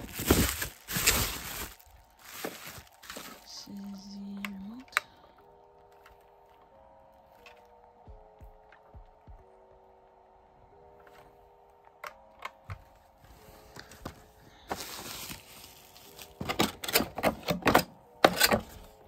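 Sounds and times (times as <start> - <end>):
plastic bags crinkling: 0.0 - 5.0, 14.5 - 16.8.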